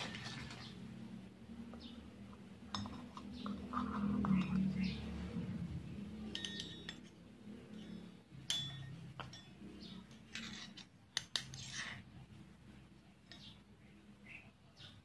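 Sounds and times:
metal taps and clinks: 2.7 - 4.6, 6.3 - 11.5.

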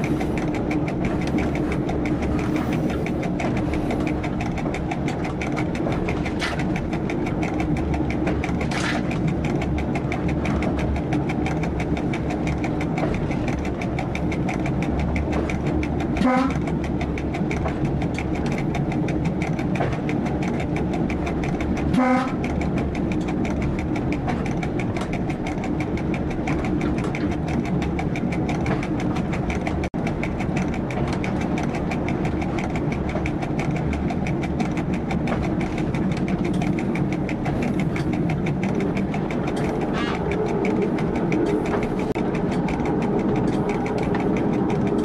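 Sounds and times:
diesel railcar engine drone: 0.0 - 45.0
rail noise: 0.0 - 45.0
train horn toot: 16.2 - 16.6, 21.9 - 22.4.

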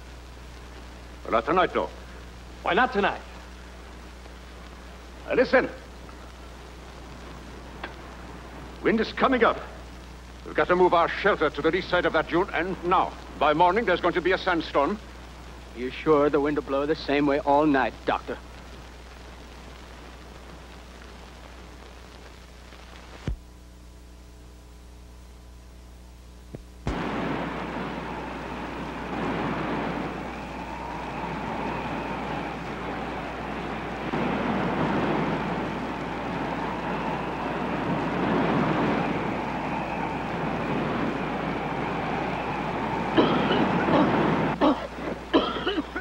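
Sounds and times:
strong wind blowing: 26.9 - 45.3
low soundtrack hum: 26.9 - 45.8.

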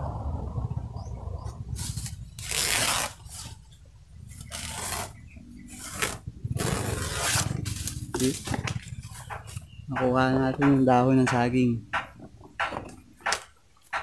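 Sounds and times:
low steady rumble: 0.0 - 13.2
leaf rustling: 1.7 - 9.6.

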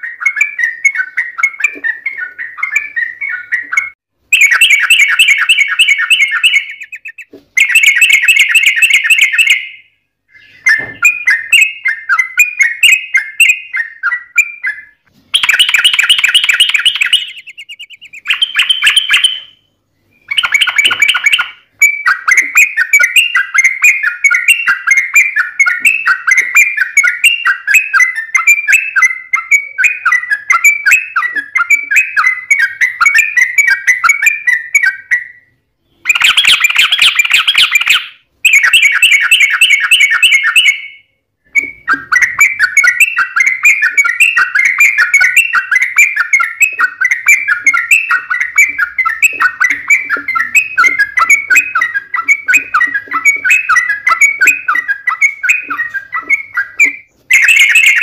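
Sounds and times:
bird singing fast chattering phrases: 0.0 - 58.0.

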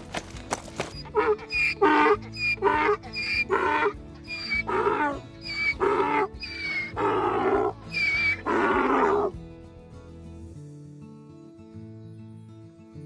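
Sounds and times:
background music: 0.0 - 13.0
donkey braying: 0.8 - 9.4.

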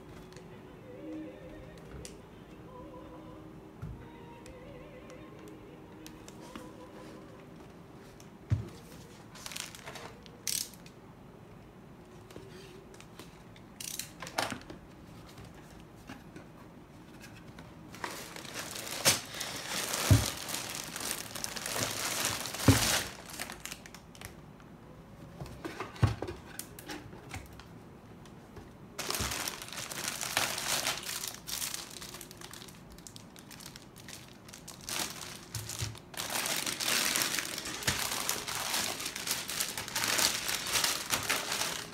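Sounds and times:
plastic bags crinkling: 9.3 - 10.8, 18.0 - 24.4, 29.0 - 41.9
bags and box thudding down: 18.3 - 20.9.

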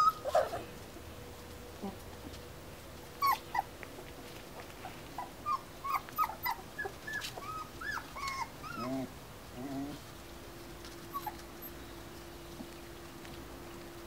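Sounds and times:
puppies whimpering: 0.0 - 0.7, 3.2 - 3.7, 4.8 - 10.0, 10.9 - 12.0.

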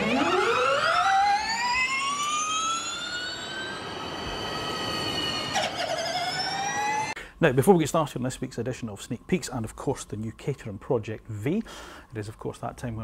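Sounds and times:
synthetic whine gliding upward: 0.0 - 7.2
lower synthetic whine: 0.0 - 11.5.

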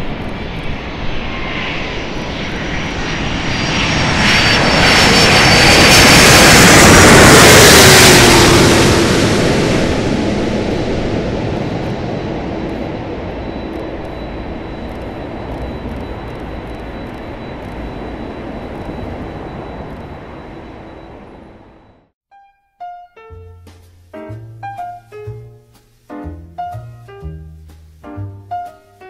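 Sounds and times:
high jet engine whine: 0.0 - 22.1
jet airliner passing overhead: 0.0 - 22.1.

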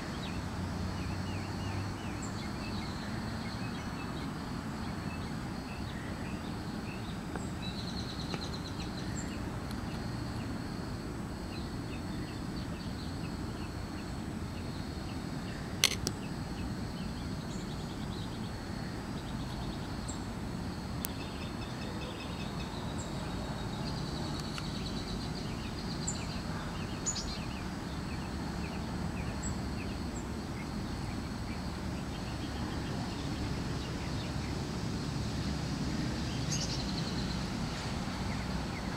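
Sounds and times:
sharp click: 15.8 - 16.2.

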